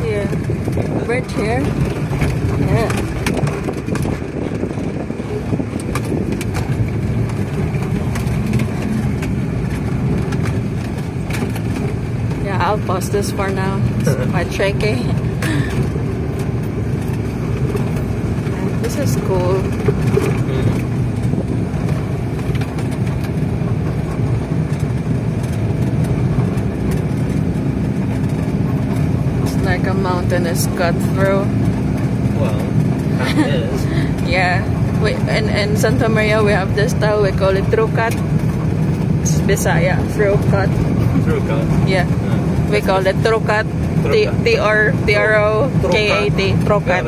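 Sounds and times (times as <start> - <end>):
van knocks and rattles: 0.0 - 12.7
engine and tyre drone: 0.0 - 47.0.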